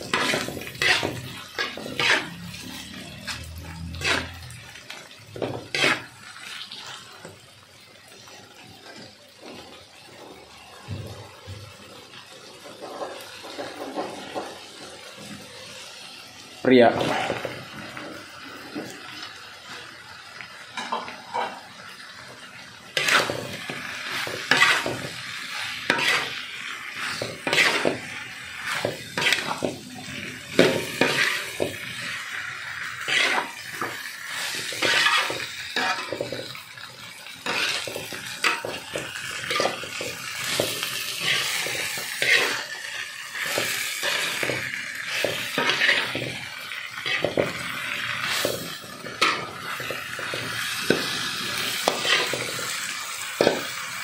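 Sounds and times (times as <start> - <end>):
metal spatula scraping wok: 0.0 - 6.7, 17.0 - 17.5, 22.9 - 36.6, 37.4 - 53.8
food sizzling: 0.0 - 54.0.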